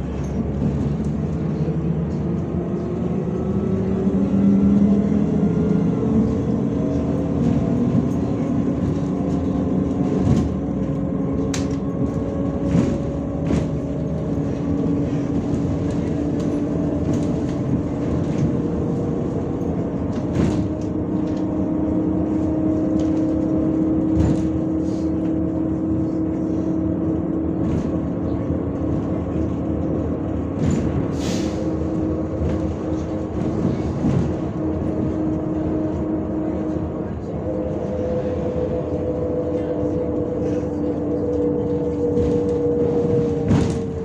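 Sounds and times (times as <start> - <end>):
bus engine hum: 0.0 - 44.0
bus body knocks and rattles: 7.2 - 25.8, 27.4 - 31.2, 31.9 - 36.4, 41.7 - 44.0.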